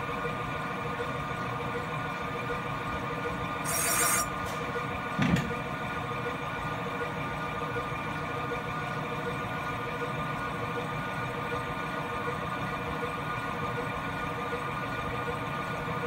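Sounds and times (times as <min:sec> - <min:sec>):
lathe machine hum: 0:00.4 - 0:04.4
metal cutting noise: 0:03.6 - 0:04.3.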